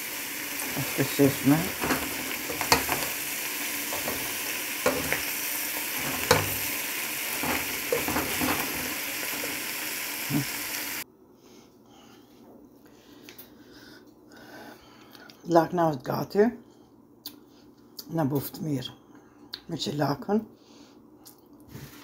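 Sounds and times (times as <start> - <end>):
food sizzling in metal pan: 0.0 - 11.0
utensil stirring food: 0.0 - 11.0
utensil clicking against pan: 0.6 - 5.3, 6.0 - 6.7.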